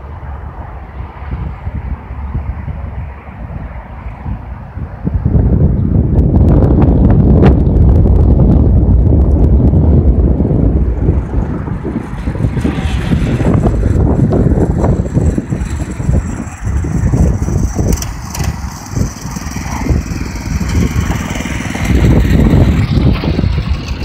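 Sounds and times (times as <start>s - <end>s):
wind rumble on microphone: 0.0s - 24.0s
mini bike engine running: 8.8s - 24.0s.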